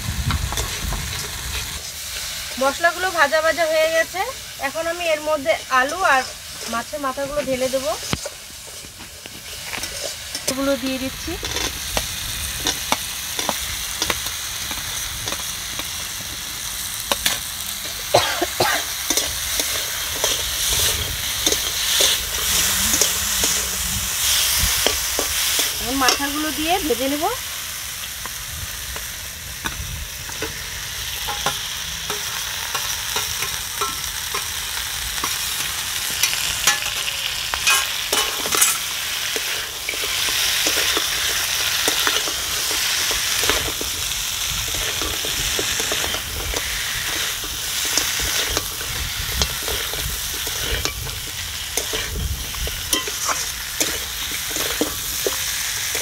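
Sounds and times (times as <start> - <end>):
fish sizzling in oil: 0.0 - 56.0
metal spatula scraping pan: 18.8 - 26.4, 44.8 - 56.0.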